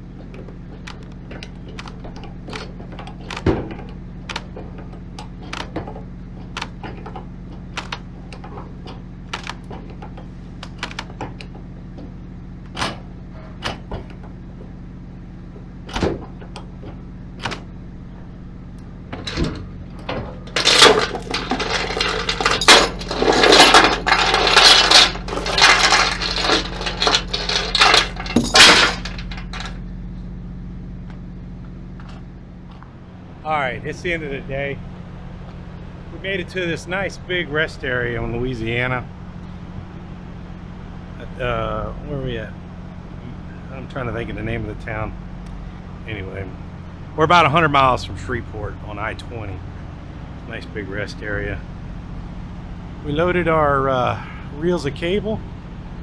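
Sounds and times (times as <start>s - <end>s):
steady low hum: 0.0s - 56.0s
steel chain clinking and jangling: 20.5s - 29.8s.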